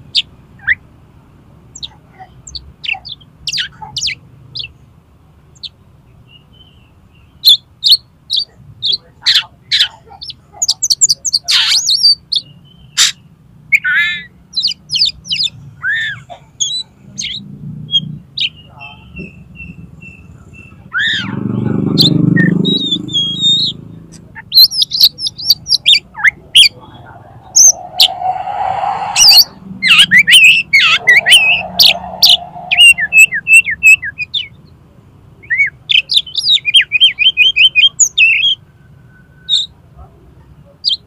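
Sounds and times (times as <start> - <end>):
songbird whistles and chirps: 24.5 - 34.5.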